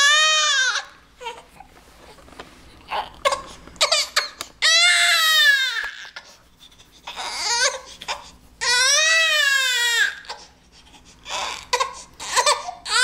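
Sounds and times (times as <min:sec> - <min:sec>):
infant crying: 0:00.0 - 0:01.5, 0:02.9 - 0:06.2, 0:07.1 - 0:10.5, 0:11.2 - 0:13.0.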